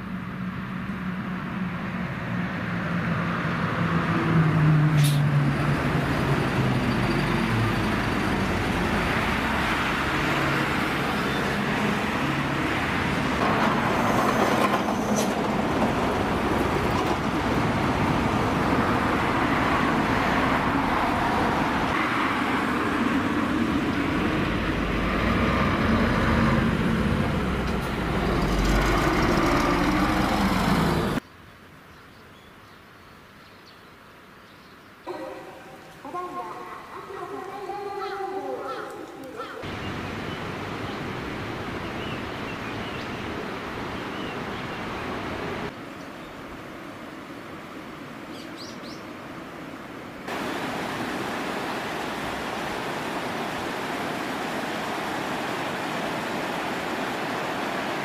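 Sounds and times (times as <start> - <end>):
diesel bus engine: 3.7 - 14.4, 22.6 - 31.2.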